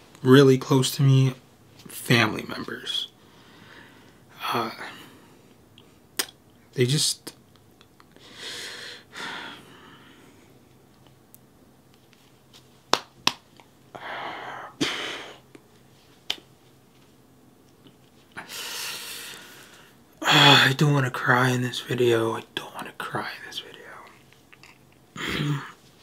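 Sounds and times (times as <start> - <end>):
man breathing heavily and sniffing: 18.4 - 20.6.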